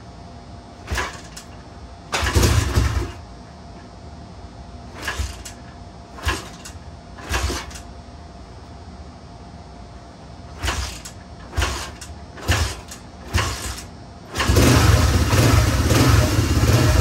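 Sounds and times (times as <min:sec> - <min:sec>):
motorcycle engine kick-start bursts: 0:00.8 - 0:03.2, 0:04.9 - 0:07.9, 0:10.5 - 0:17.0.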